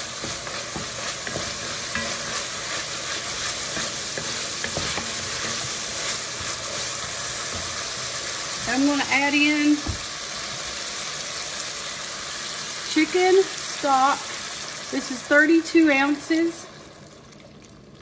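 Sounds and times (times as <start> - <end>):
wooden spoon scraping a pot: 0.0 - 8.8
vegetables sizzling in a pot: 0.0 - 17.9.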